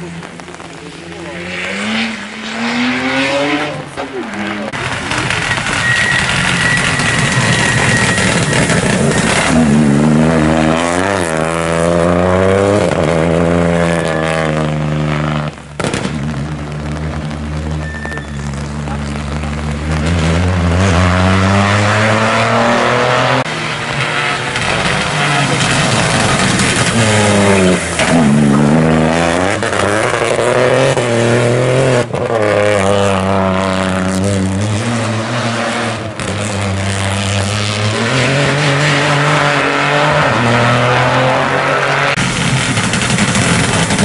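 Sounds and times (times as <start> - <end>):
rain and tyre spray hiss: 0.0 - 10.7
rally car engine revving: 0.0 - 44.0.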